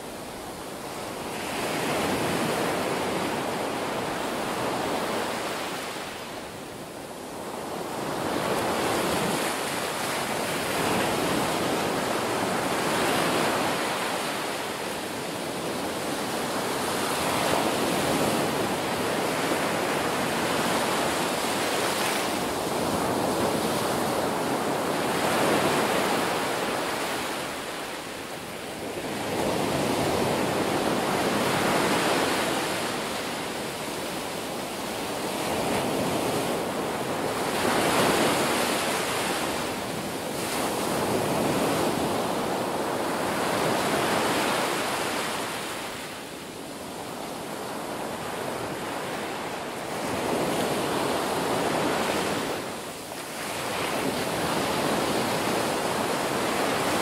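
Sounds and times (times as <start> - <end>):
small waves breaking on beach: 0.0 - 57.0.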